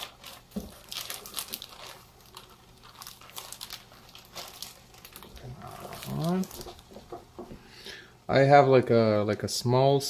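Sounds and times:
plastic bag crinkling: 0.0s - 7.1s.

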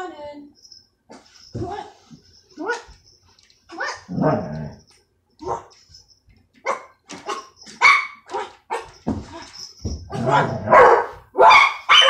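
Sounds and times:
dog barking: 5.4s - 5.8s, 6.6s - 9.0s, 10.2s - 12.0s.

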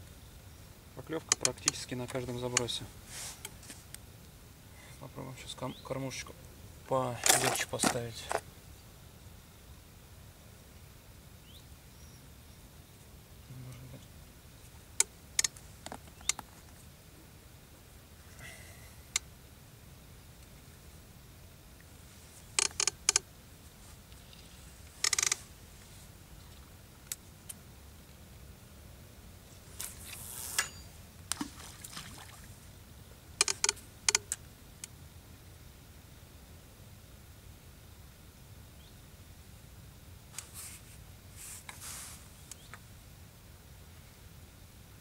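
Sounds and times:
fishing tackle clicks: 33.4s - 34.4s.

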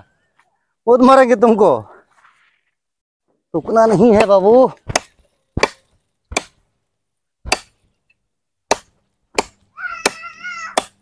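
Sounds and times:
blade chopping dry wood: 3.8s - 6.7s, 7.4s - 7.9s, 8.6s - 11.0s.

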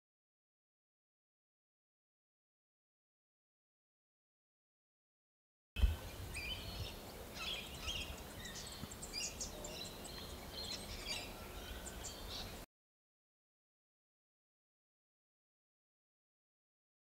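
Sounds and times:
small birds chirping: 5.8s - 12.7s.

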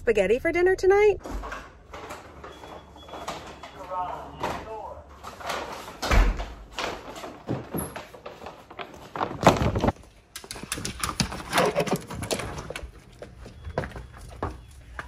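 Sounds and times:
paper bags rustling and knocking: 1.6s - 12.7s.

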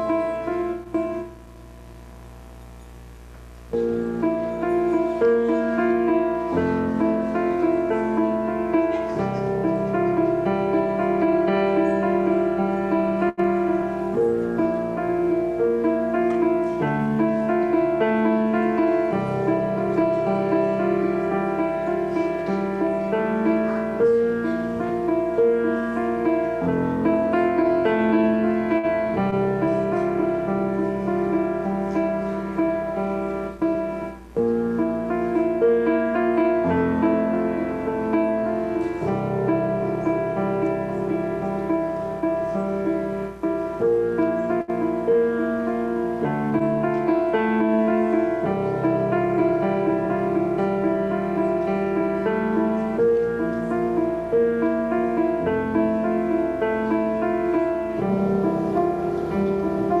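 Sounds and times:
piano music: 0.0s - 60.0s.

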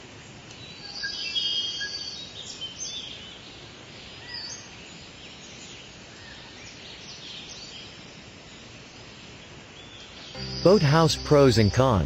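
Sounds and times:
outdoor background hiss: 0.0s - 12.0s
birds chirping: 9.8s - 12.0s.

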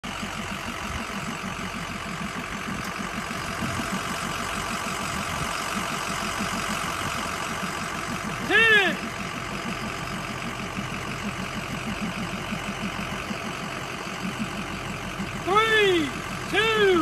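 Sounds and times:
truck engine idling: 0.0s - 17.0s.

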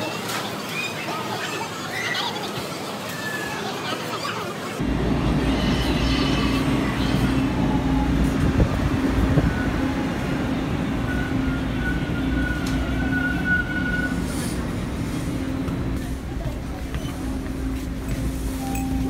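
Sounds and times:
subway train rumbling: 0.0s - 19.0s
high brake squeal: 11.0s - 14.6s.

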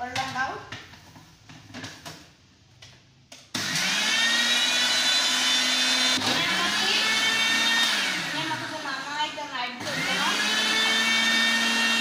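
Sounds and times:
electric blender whining: 3.5s - 12.0s.

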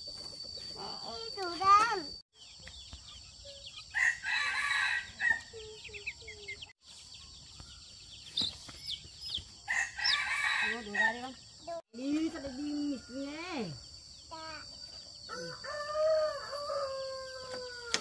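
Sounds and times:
rooster crowing: 3.9s - 5.5s, 9.7s - 11.1s, 15.3s - 18.0s.

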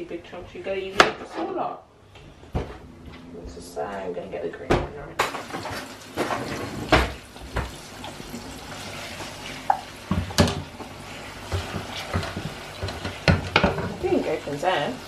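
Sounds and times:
onion sizzling in saucepan: 5.2s - 15.0s
wooden spoon knocking pan: 11.5s - 14.3s.

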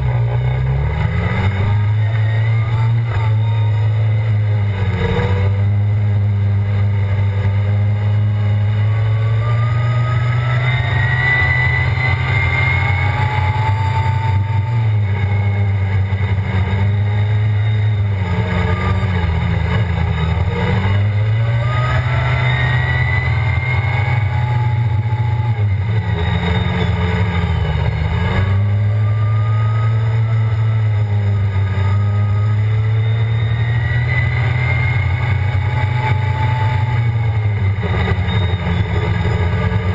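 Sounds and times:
atv engine running hard: 0.0s - 39.9s.

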